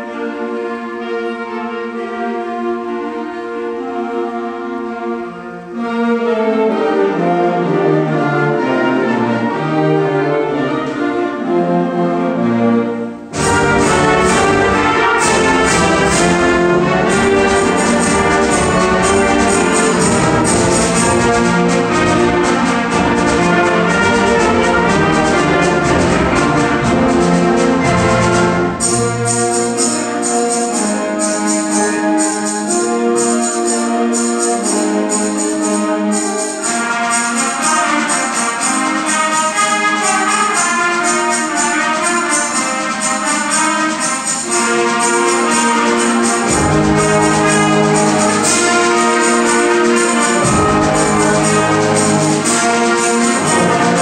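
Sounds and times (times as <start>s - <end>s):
concert band playing: 0.0s - 54.0s
percussion strokes: 13.2s - 54.0s.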